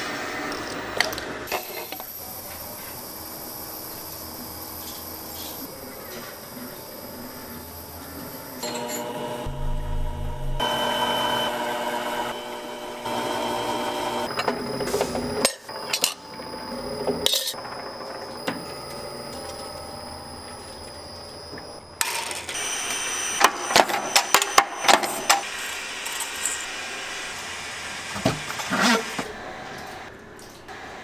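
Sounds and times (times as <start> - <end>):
motor hum: 3.1 - 22.0
high thin whine: 8.6 - 13.2.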